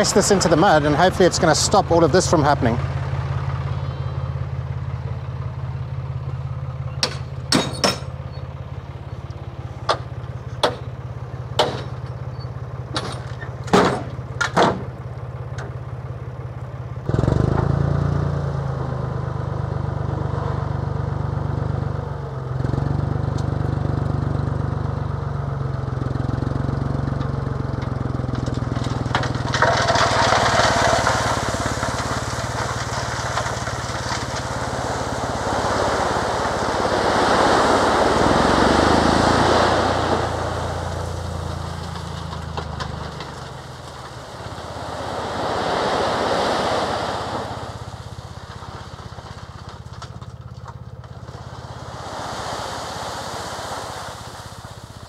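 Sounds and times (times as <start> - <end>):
tractor engine running: 0.0 - 55.0
sharp knocks: 9.9 - 10.9, 11.6 - 12.0
rushing hiss: 51.8 - 55.0.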